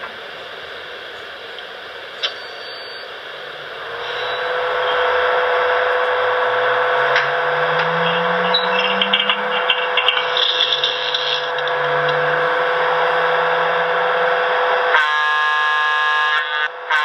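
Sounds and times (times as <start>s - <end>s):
electric locomotive hum: 0.0s - 17.0s
low tone rising in pitch: 3.7s - 14.9s.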